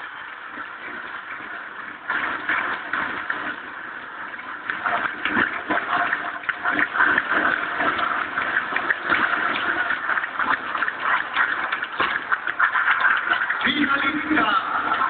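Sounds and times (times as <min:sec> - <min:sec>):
crowd cheering and applauding: 0:04.8 - 0:15.0.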